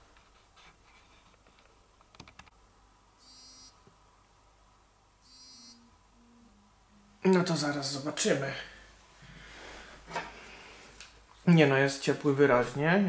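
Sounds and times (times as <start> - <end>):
short faint buzzing alerts: 3.2 - 3.8, 5.2 - 7.2.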